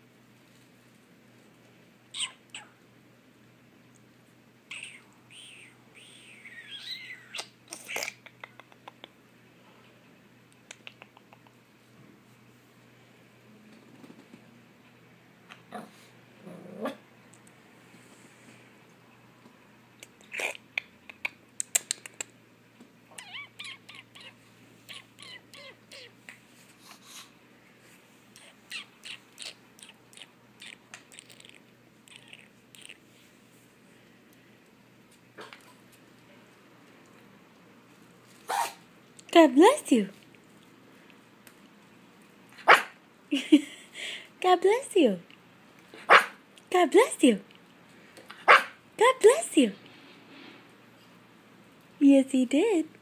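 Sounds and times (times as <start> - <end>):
puppy whimpering: 23.1 - 26.2.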